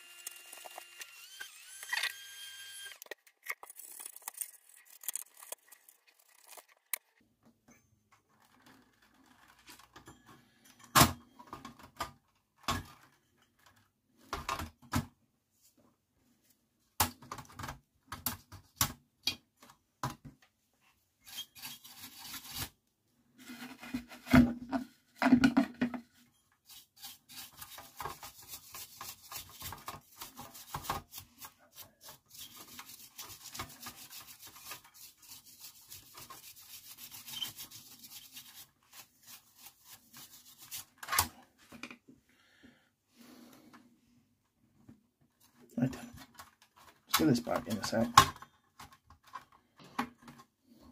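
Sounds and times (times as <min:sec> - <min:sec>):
rapid rubbing strokes: 0:26.7 - 0:41.0.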